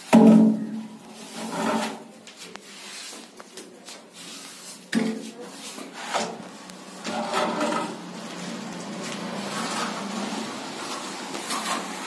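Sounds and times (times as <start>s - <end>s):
straight edge scraping plaster: 1.2s - 2.1s, 4.2s - 6.4s, 7.0s - 8.0s, 9.1s - 12.0s.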